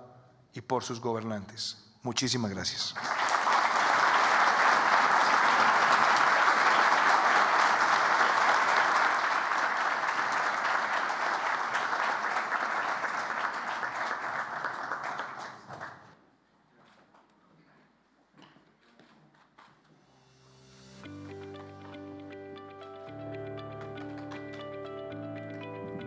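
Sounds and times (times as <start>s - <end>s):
audience applauding: 3.0s - 16.2s, 23.3s - 25.8s.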